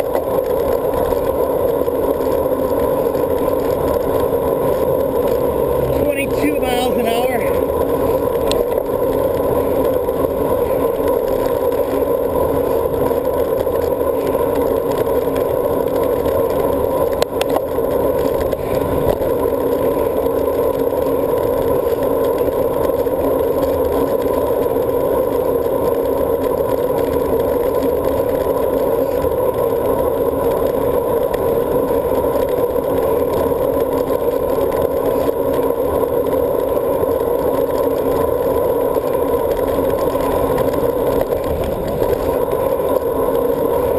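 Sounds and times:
bicycle tyre noise: 0:00.0 - 0:43.9
dull constant hum: 0:00.0 - 0:43.9.

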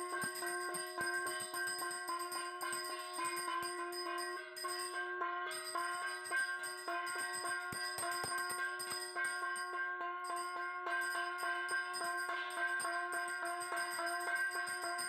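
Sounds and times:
metal hand bell ringing rapidly: 0:00.0 - 0:15.0.

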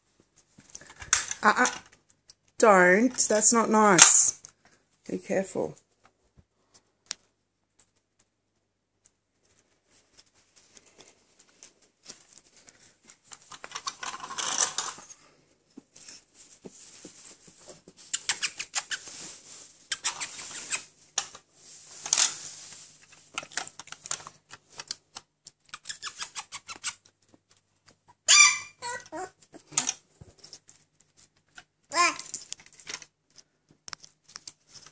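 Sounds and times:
puppy squeal: 0:28.1 - 0:29.3.

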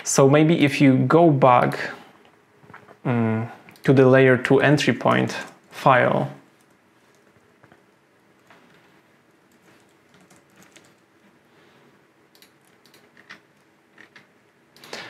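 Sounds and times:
keyboard keystrokes clicking: 0:09.5 - 0:11.0, 0:12.4 - 0:13.4.

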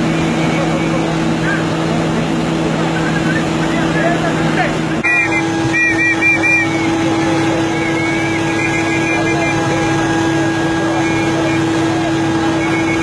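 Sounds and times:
crane engine humming: 0:00.0 - 0:13.0
short high chirps: 0:05.0 - 0:09.8.

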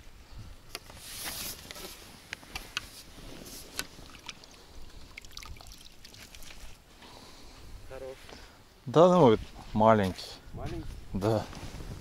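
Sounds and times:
dripping ticks: 0:03.8 - 0:06.6
water splashing: 0:03.8 - 0:06.8.

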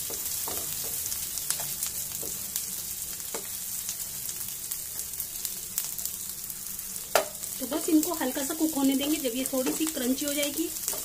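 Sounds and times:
wooden spatula scraping and tapping: 0:00.0 - 0:02.4, 0:09.6 - 0:10.0
vegetables sizzling in hot oil: 0:00.0 - 0:11.0.

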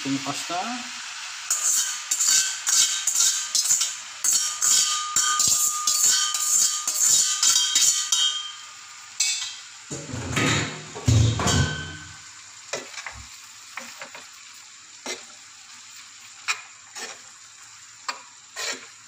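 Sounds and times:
metal colander clanking on pan: 0:01.5 - 0:08.5, 0:09.2 - 0:12.2.

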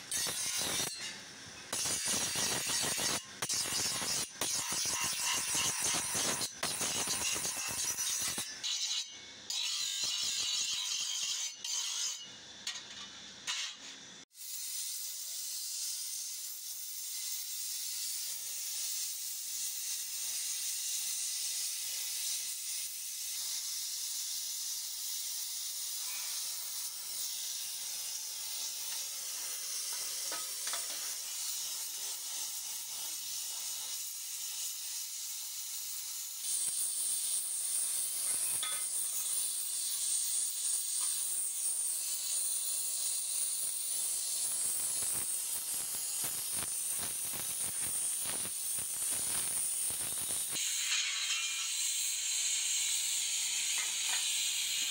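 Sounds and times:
brazing torch flame hissing: 0:43.6 - 0:50.6.

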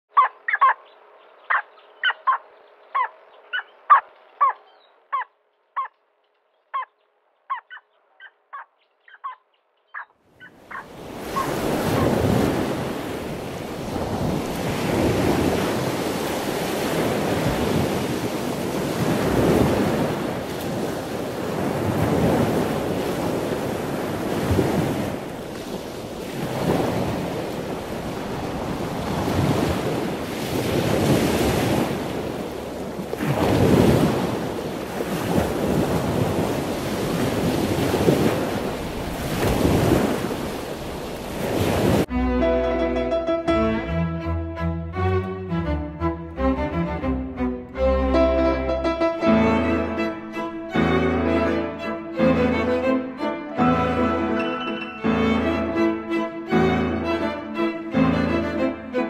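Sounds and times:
bird sharp calls: 0:00.1 - 0:06.0, 0:06.6 - 0:12.2.

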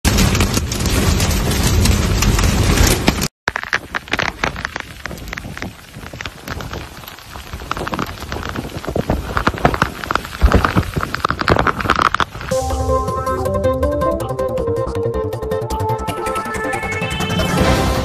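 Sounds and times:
heavy rain pelting down: 0:00.0 - 0:13.0.

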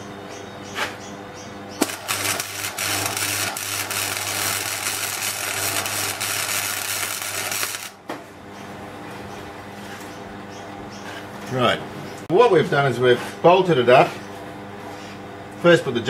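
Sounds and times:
welding arc crackling: 0:01.8 - 0:08.0.

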